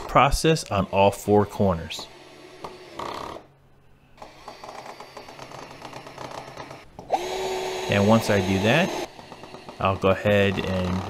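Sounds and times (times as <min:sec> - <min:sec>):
drill motor whining: 0:04.2 - 0:11.0.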